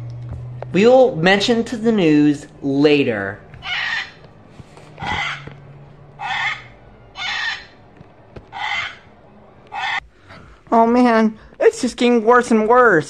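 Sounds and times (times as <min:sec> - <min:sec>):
toy bird squawks: 0:03.6 - 0:04.2, 0:05.0 - 0:05.4, 0:06.2 - 0:07.7, 0:08.5 - 0:09.1, 0:09.7 - 0:10.0.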